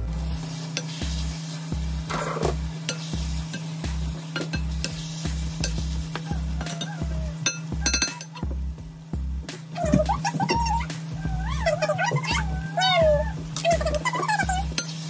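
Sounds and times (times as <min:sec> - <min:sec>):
background music with low beat: 0:00.0 - 0:15.0
light sizzling: 0:00.0 - 0:15.0
spatula scraping food in a pan: 0:00.4 - 0:08.4, 0:13.9 - 0:15.0.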